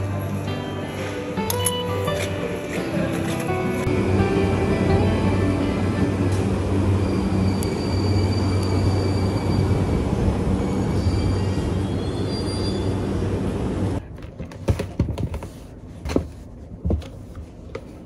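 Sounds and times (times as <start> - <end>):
train rumbling: 2.4 - 14.1.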